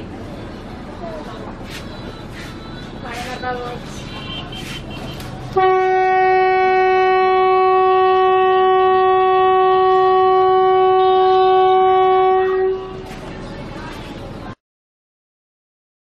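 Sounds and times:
train horn blast: 4.2 - 13.1.

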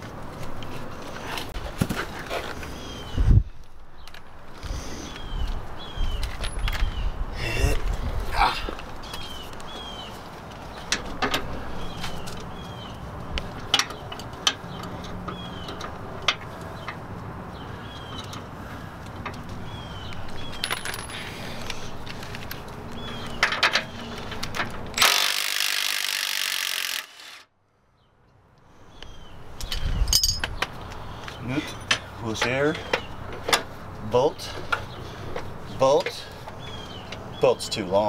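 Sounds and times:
hand tools clinking on metal: 20.6 - 21.4, 29.7 - 30.6.

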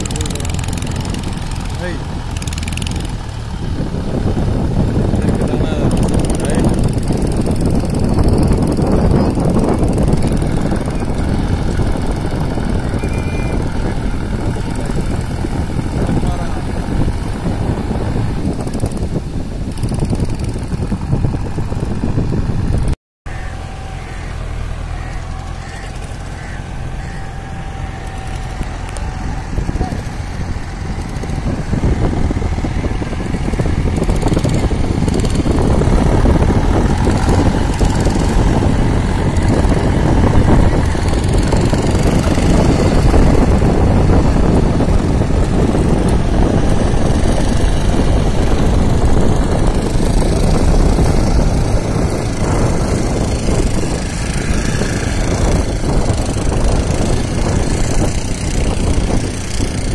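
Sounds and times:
tractor diesel engine under load: 0.0 - 59.9.

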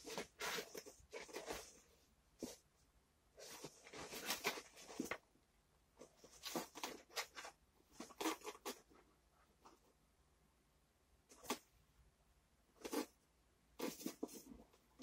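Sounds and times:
pet scratching in cardboard box: 0.0 - 2.6, 3.4 - 5.2, 6.1 - 9.0, 13.8 - 14.8.

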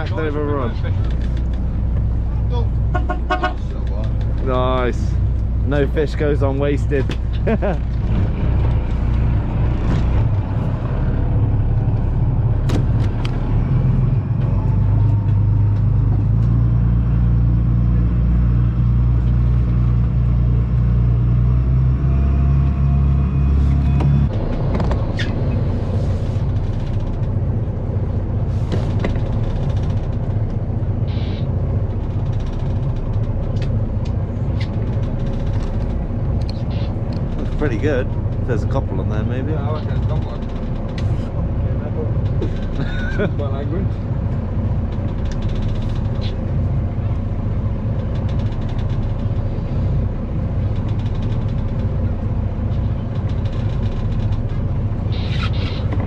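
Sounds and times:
boat engine droning: 0.0 - 56.0
low rumble: 0.0 - 56.0.

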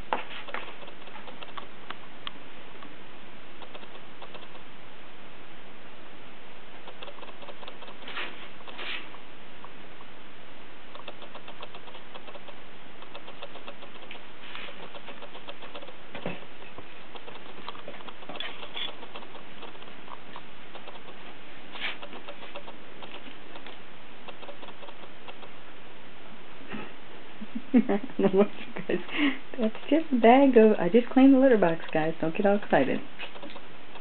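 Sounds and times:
kitten paws scratching: 0.0 - 1.7, 3.6 - 4.6, 6.8 - 9.2, 11.0 - 25.6, 28.2 - 34.0
kitten scuffing litter: 8.0 - 9.1, 21.8 - 22.1.

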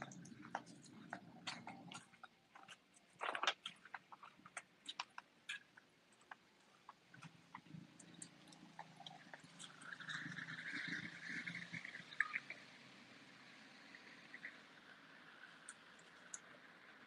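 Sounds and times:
footsteps and paws on paving: 0.0 - 10.3.

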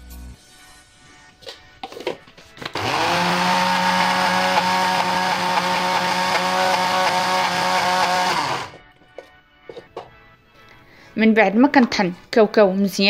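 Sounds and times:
food processor grinding: 2.6 - 8.8.

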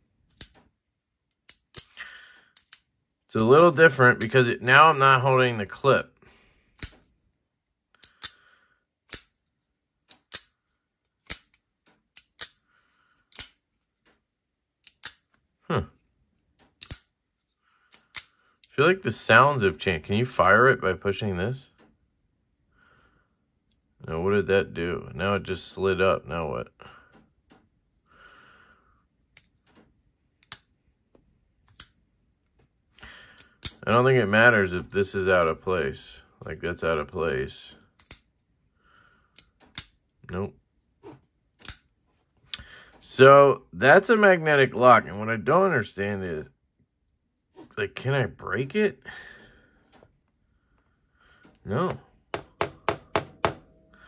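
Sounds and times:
folding knife clicking open and shut: 1.5 - 2.0, 8.0 - 8.5, 9.1 - 9.4, 10.1 - 10.6, 11.2 - 12.6, 13.3 - 13.6, 14.8 - 15.3, 16.8 - 17.1, 17.9 - 18.4, 30.4 - 30.7
knife blade snapping open: 8.0 - 8.4.

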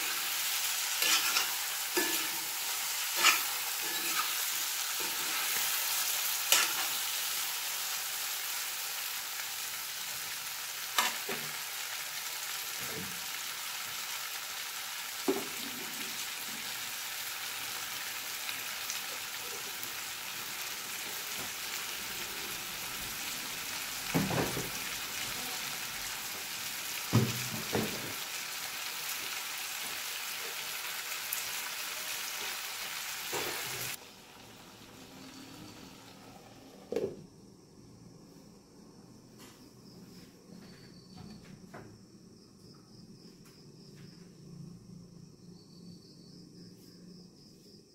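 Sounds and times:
food sizzling in hot oil: 0.0 - 36.9.

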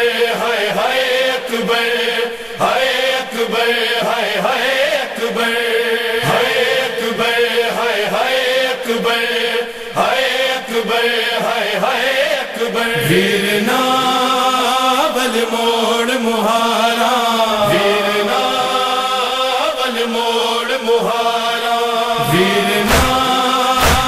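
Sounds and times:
men chanting a lament: 0.0 - 24.0
steady drone: 6.2 - 7.7, 22.2 - 24.0.

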